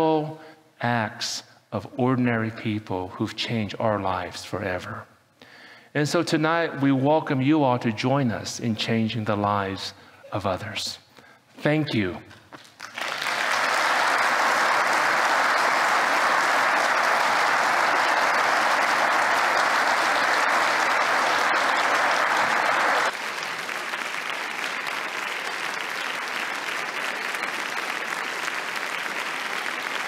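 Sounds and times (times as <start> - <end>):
audience applauding: 12.6 - 30.0.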